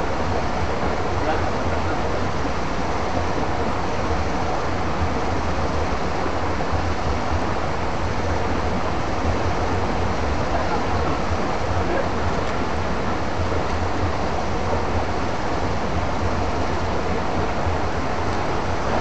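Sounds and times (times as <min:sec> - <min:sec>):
flowing stream water: 0:00.0 - 0:19.0.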